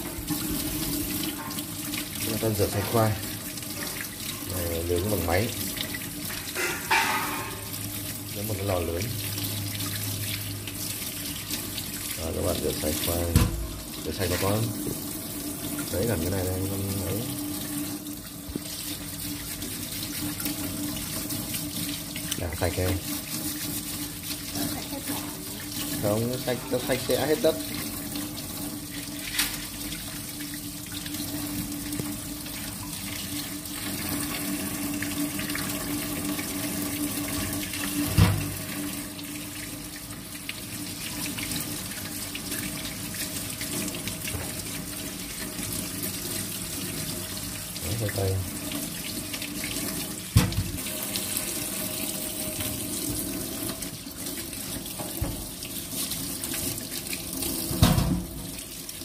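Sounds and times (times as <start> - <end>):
water splashing over vegetables: 0.0 - 15.0, 18.5 - 27.8, 40.4 - 51.0
tap water running into sink: 0.0 - 59.0.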